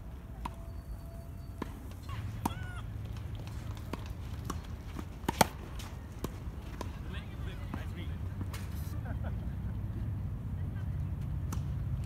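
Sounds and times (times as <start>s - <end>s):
tennis racket hitting ball: 1.6s - 7.0s.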